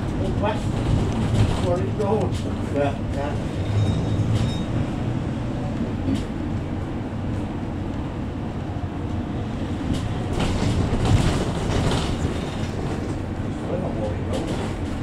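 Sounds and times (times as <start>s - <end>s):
body knocks and rattles: 0.0s - 2.6s, 10.0s - 13.2s
engine and road rumble: 0.0s - 15.0s.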